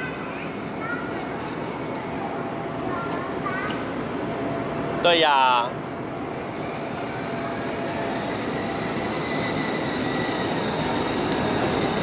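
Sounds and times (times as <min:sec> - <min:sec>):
toy car motor whirring: 0:06.4 - 0:12.0.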